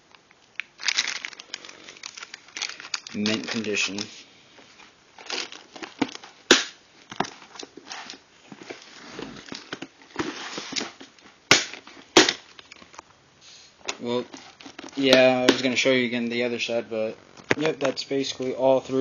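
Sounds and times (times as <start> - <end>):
plastic crinkling and rustling: 0.0 - 13.0, 13.8 - 18.6.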